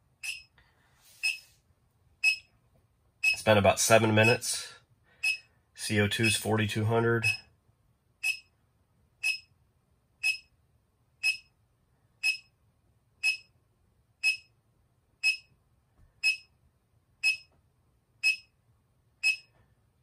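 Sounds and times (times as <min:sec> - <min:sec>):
high-pitched meter beeps: 0:00.2 - 0:00.5, 0:01.2 - 0:01.5, 0:02.2 - 0:02.5, 0:03.2 - 0:03.4, 0:05.2 - 0:05.5, 0:08.2 - 0:08.5, 0:09.2 - 0:09.5, 0:10.2 - 0:10.5, 0:11.2 - 0:11.5, 0:12.2 - 0:12.5, 0:13.2 - 0:13.5, 0:14.2 - 0:14.5, 0:15.2 - 0:15.5, 0:16.2 - 0:16.5, 0:17.2 - 0:17.5, 0:18.2 - 0:18.5, 0:19.2 - 0:19.5.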